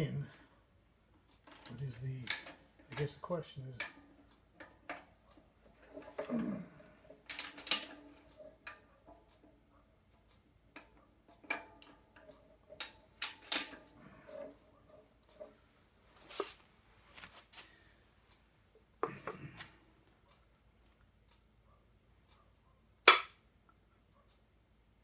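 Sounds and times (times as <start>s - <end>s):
metallic clinks and knocks: 1.3s - 16.6s.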